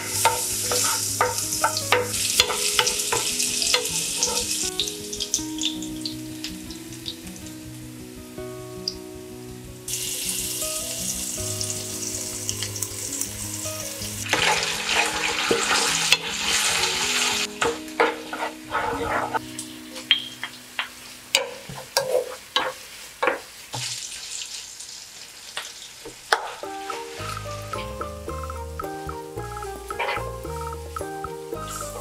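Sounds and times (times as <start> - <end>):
wooden spoon scraping a pan: 0.0 - 4.7, 14.3 - 19.5, 20.8 - 24.5, 26.3 - 27.4
soft background music: 0.0 - 21.7, 26.6 - 32.0
oil sizzling in a frying pan: 0.0 - 32.0.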